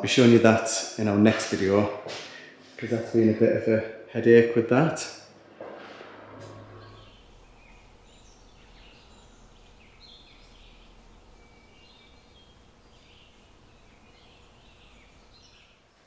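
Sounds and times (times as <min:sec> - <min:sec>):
steady background hiss: 0:00.0 - 0:16.0
faint birds chirping: 0:06.4 - 0:16.0.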